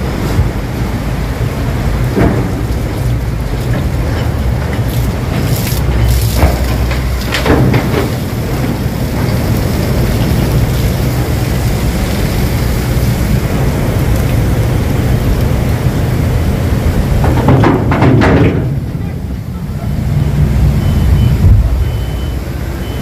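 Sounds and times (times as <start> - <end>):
churning water: 0.0 - 23.0
diesel engine running: 0.0 - 23.0.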